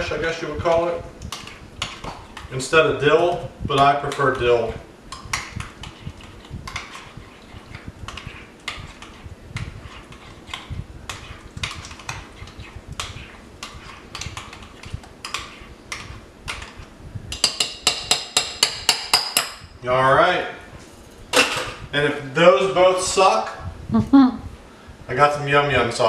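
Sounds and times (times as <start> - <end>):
utensil clicking against bowl: 10.5 - 19.5.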